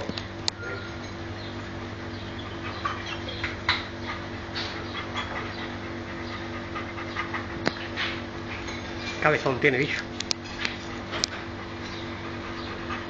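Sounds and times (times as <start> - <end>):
steady low hum: 0.0 - 13.0
dog panting: 1.6 - 9.3, 10.6 - 13.0.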